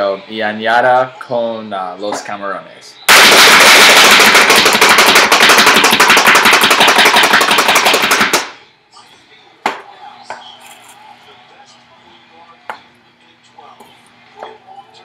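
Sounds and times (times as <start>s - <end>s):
food chopper blades clattering: 3.1s - 8.5s.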